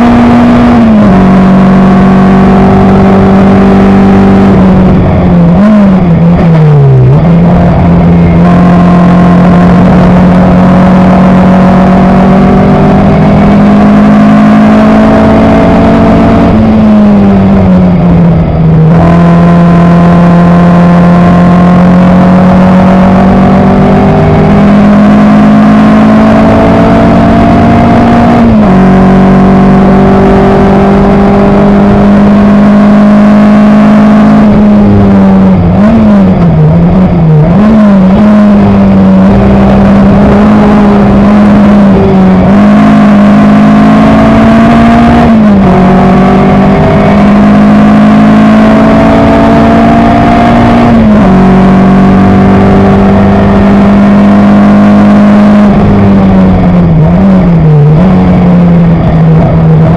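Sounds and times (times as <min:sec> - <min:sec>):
racing engine at high revs: 0:00.0 - 0:59.9.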